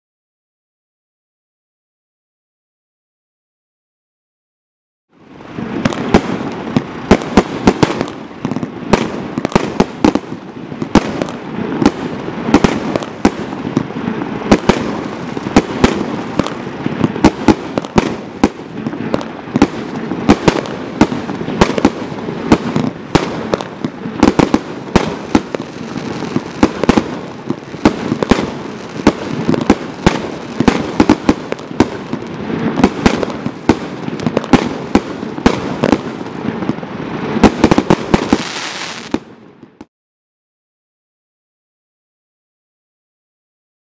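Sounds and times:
crackling hiss of fireworks: 0:05.2 - 0:39.9
firework bangs: 0:05.4 - 0:39.9.

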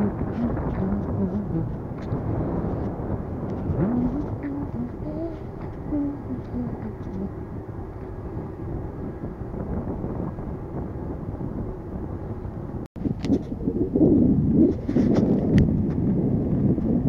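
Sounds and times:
wind on microphone: 0:00.0 - 0:17.0
bicycle tyres on paved road: 0:01.1 - 0:04.6, 0:14.4 - 0:17.0.

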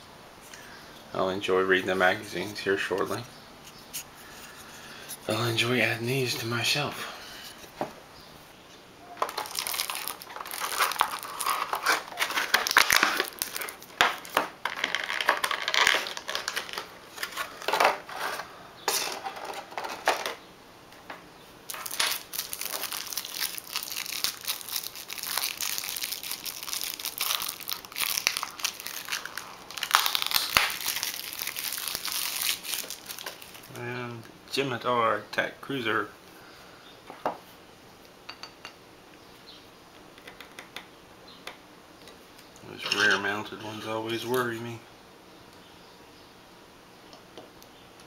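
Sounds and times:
plastic packaging crinkling: 0:09.2 - 0:18.4, 0:21.7 - 0:33.8.

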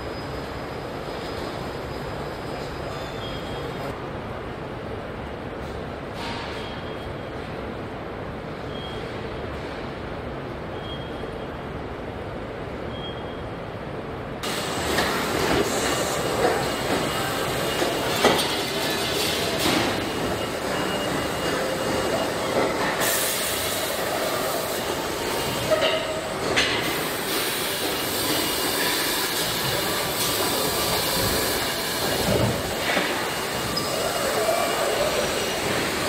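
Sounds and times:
machinery din and hiss: 0:14.4 - 0:36.0.

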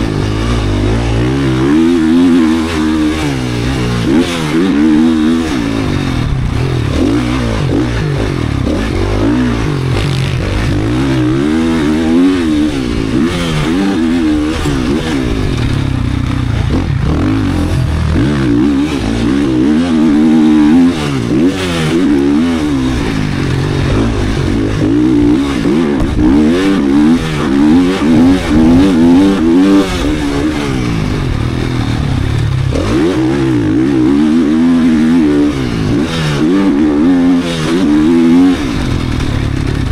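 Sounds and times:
motocross bike engine revving: 0:00.0 - 0:39.9.

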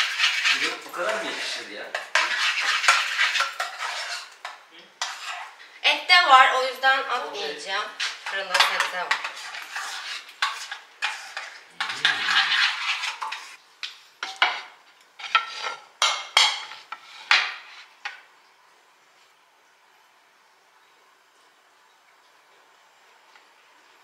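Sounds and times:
metal spoon scraping saucepan: 0:00.0 - 0:05.7, 0:07.4 - 0:13.6, 0:14.2 - 0:17.9
dishes clinking on counter: 0:08.2 - 0:09.3.

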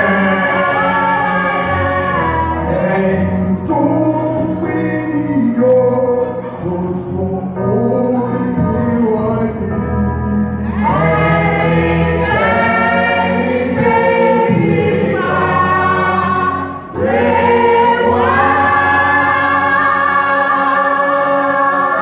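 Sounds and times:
gospel choir singing: 0:00.0 - 0:22.0.

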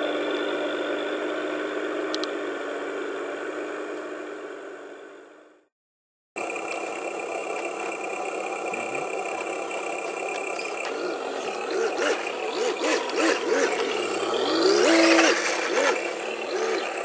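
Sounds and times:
electronic engine sound revving: 0:08.4 - 0:17.0.

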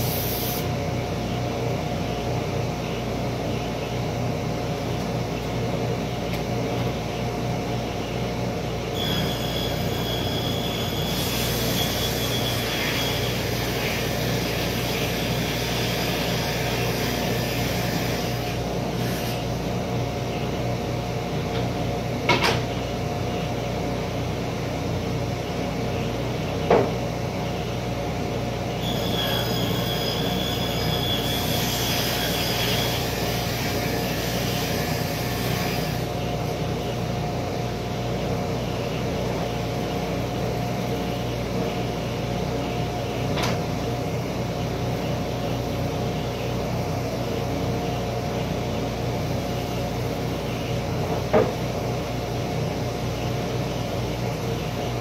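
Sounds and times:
workshop machine humming: 0:00.0 - 0:55.0
high squealing whine: 0:08.7 - 0:19.5, 0:28.6 - 0:37.7.

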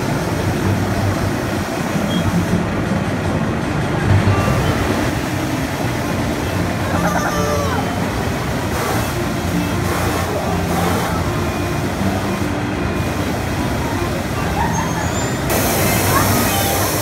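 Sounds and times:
air blowers whooshing: 0:00.0 - 0:17.0
faint children's voices: 0:06.7 - 0:08.5, 0:09.2 - 0:17.0.

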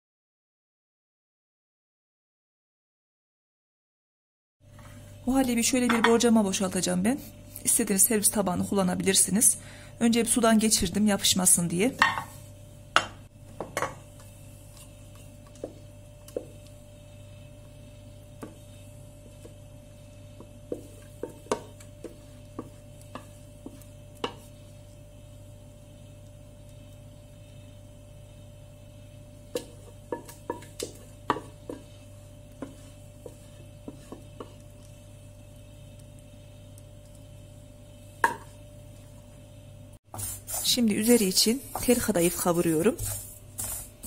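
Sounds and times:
steady low hum: 0:04.6 - 0:44.0.

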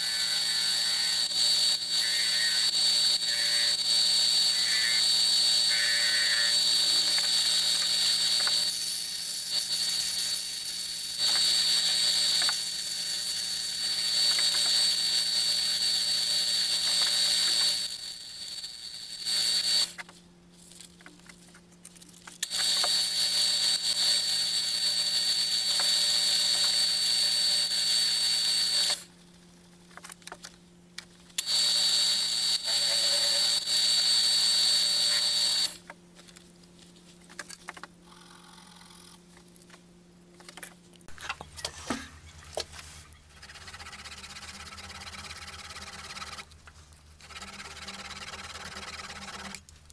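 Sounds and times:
lathe running with high whine: 0:00.0 - 0:20.0, 0:22.4 - 0:29.1, 0:31.4 - 0:35.8, 0:47.2 - 0:49.6.

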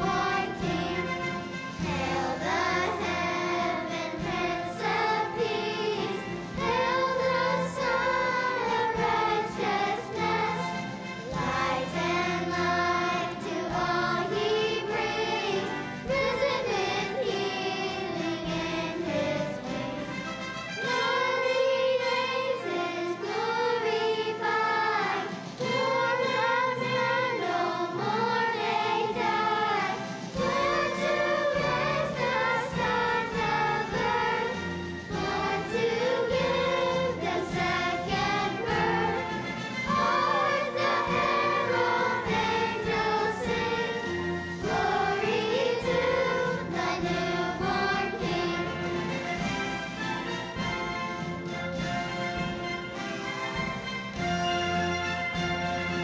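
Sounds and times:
children's choir singing: 0:00.0 - 0:56.0
instrumental accompaniment: 0:00.0 - 0:56.0.

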